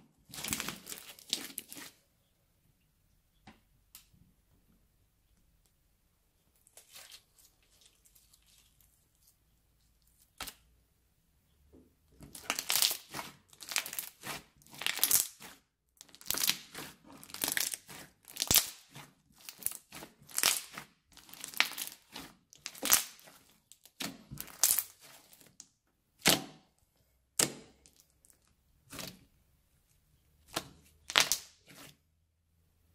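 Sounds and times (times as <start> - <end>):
slime crackling and popping: 12.2 - 25.6, 30.5 - 31.9.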